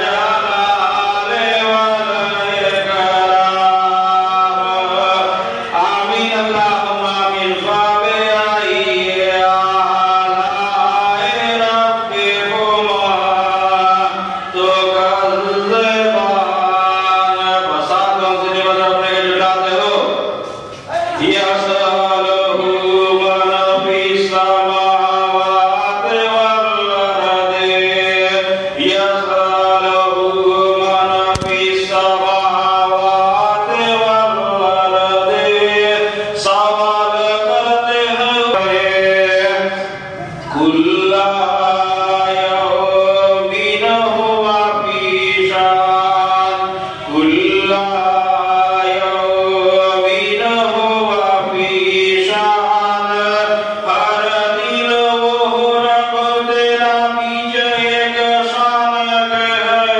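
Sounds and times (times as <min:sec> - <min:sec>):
man chanting into a microphone: 0:00.0 - 0:59.9
sharp click: 0:31.3 - 0:31.8.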